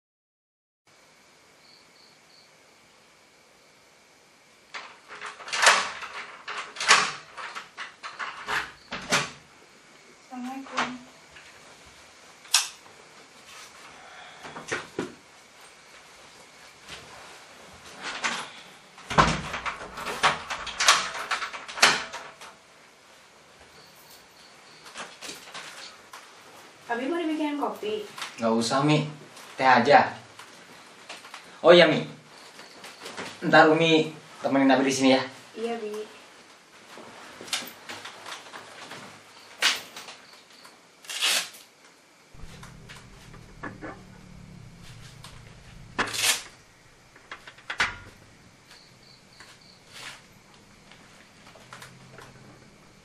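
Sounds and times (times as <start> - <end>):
wooden door shutting: 4.8 - 9.4, 18.2 - 22.5, 42.4 - 53.0
low steady hum: 42.3 - 53.0
heavy thud: 42.4 - 48.7
wooden chair creaking under weight: 42.4 - 53.0.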